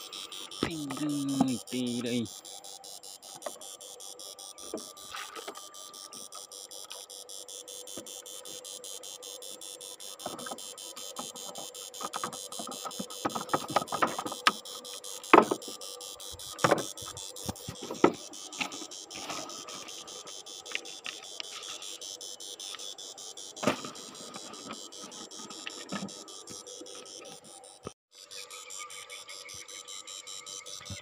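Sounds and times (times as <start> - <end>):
boat engine ticking: 0.0 - 9.0
knocks and clatter in wooden boat: 12.0 - 14.6.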